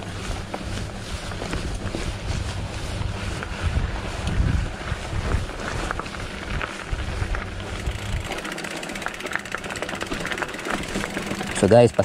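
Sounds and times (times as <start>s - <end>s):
wind buffeting microphone: 0.0s - 9.1s
tyre rumble on dirt: 0.0s - 11.8s.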